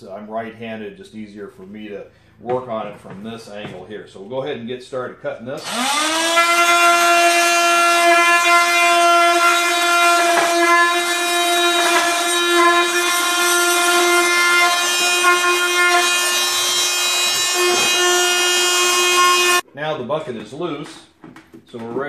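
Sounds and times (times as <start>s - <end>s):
power drill motor whine: 5.6s - 7.4s.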